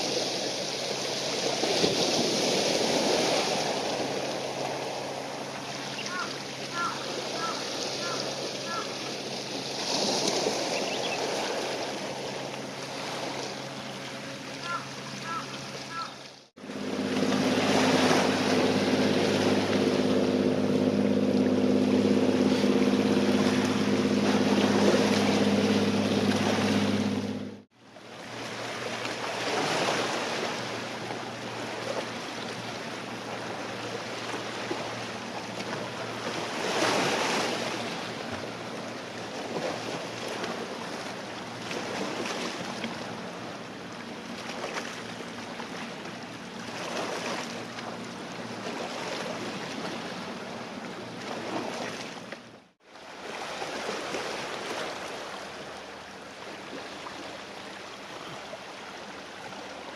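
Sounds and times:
small waves washing: 0.0 - 59.9
low mechanical drone: 16.6 - 29.3.

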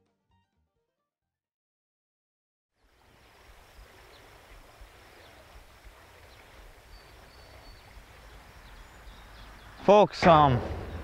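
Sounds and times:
faint bird chirps: 3.5 - 9.9.

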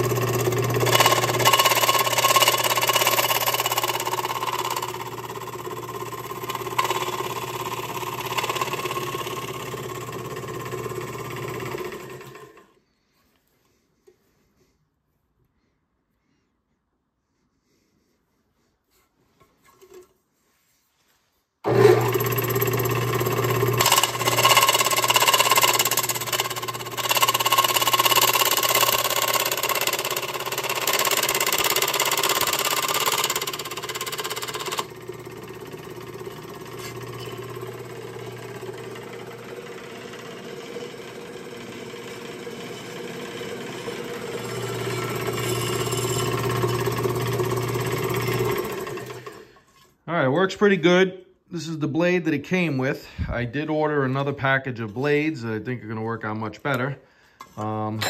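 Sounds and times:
scroll saw cutting metal: 0.0 - 12.6, 21.7 - 50.0.

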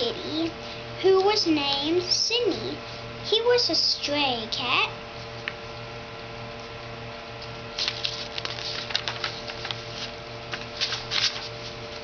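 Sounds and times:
steady low hum: 0.0 - 12.0
paper rustling: 7.7 - 12.0.

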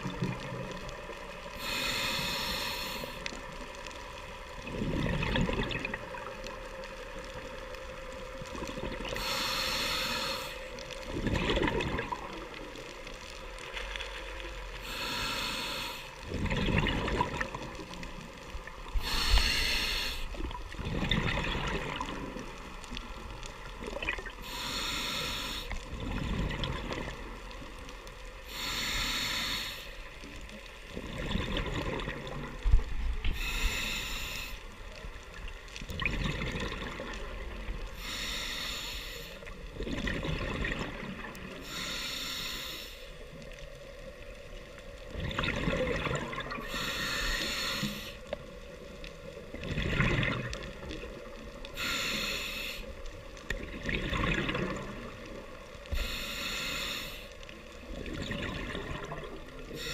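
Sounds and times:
exhaled bubbles gurgling: 0.0 - 3.2, 4.5 - 13.2, 16.2 - 27.8, 30.8 - 34.0, 35.2 - 38.2, 39.5 - 41.7, 43.8 - 52.2, 53.0 - 56.4, 57.6 - 59.9
regulator inhale hiss: 0.8 - 4.0, 9.0 - 11.0, 13.6 - 16.2, 18.3 - 20.5, 24.4 - 25.9, 27.8 - 30.4, 33.2 - 35.1, 37.8 - 39.7, 41.5 - 44.1, 46.6 - 49.4, 51.5 - 53.6, 55.8 - 58.0, 59.6 - 59.9.

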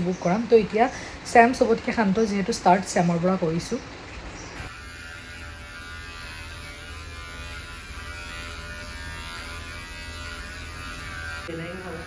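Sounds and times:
electric hair clipper buzzing: 4.6 - 12.0.

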